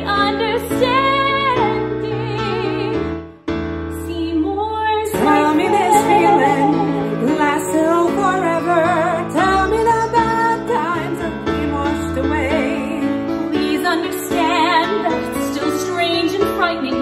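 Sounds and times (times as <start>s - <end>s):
piano backing track: 0.0s - 17.0s
woman and man singing duet: 5.0s - 11.6s.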